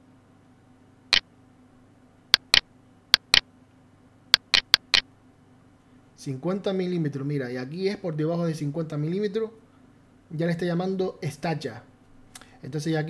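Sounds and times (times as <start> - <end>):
computer mouse clicking: 2.4 - 2.6, 3.2 - 3.4, 4.4 - 5.0.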